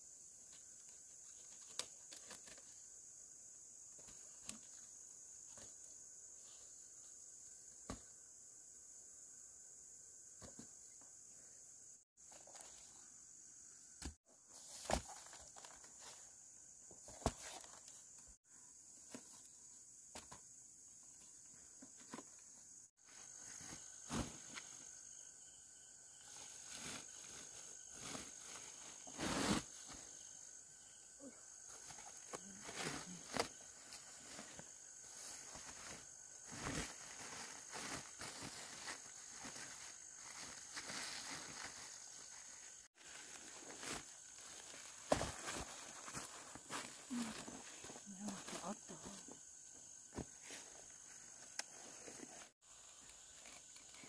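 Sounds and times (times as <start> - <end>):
high insect chirring: 19.4 - 51.7
leaves rustling: 26.2 - 30.6, 31.2 - 49.3.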